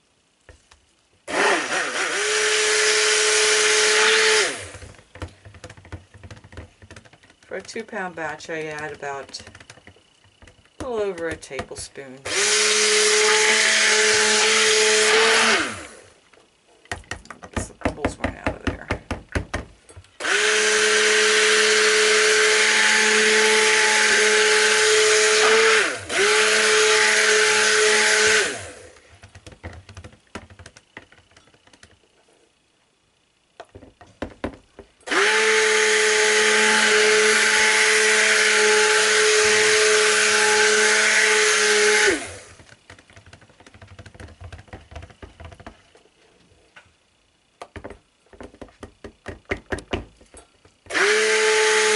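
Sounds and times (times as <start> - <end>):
stick blender motor whine: 1.3 - 16.2, 20.2 - 31.9, 33.7 - 45.8, 50.8 - 51.9.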